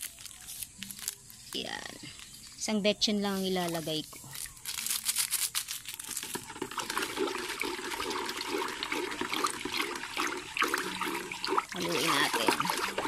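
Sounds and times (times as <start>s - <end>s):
paper packet rustling: 0.0s - 2.6s, 3.3s - 7.2s
water sloshing in a plastic bucket: 6.2s - 13.0s.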